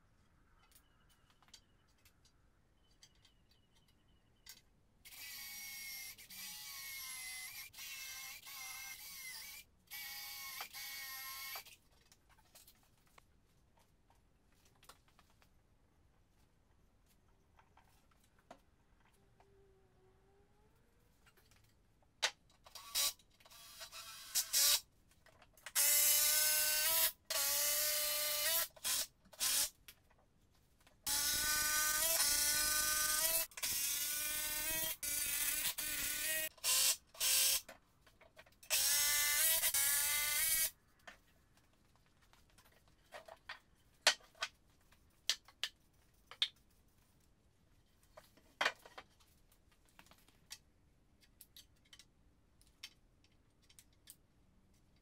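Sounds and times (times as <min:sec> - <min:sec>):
power drill whining: 0:22.7 - 0:24.8, 0:31.1 - 0:37.7.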